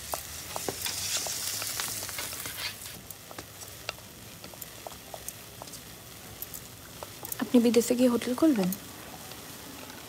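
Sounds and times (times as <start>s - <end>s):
sharp pops and crackles: 0.0s - 7.6s
food sizzling in frying pan: 0.0s - 10.0s.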